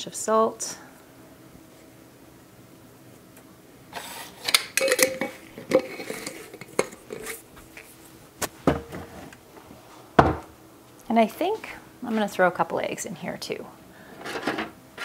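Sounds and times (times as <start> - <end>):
dishes and utensils clinking: 4.4 - 7.4.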